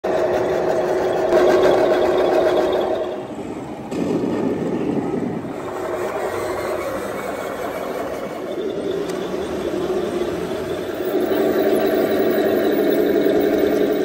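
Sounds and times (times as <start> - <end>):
model tanks whining drone: 0.0 - 14.0.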